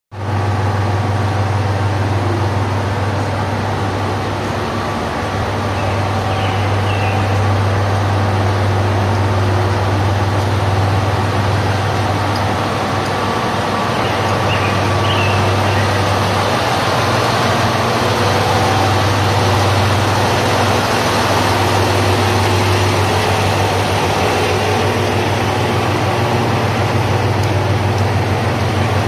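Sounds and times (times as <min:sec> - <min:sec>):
diesel engine idling: 0:00.2 - 0:29.0.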